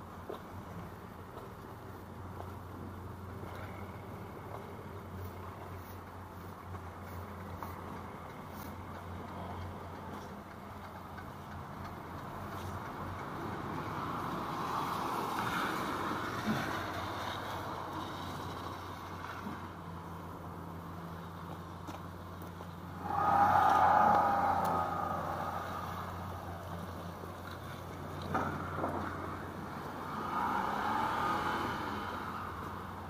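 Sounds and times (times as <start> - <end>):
steady low traffic hum: 0.0 - 33.0
tyres hissing on wet road: 13.6 - 20.0, 23.0 - 33.0
vehicle passing close: 22.9 - 33.0.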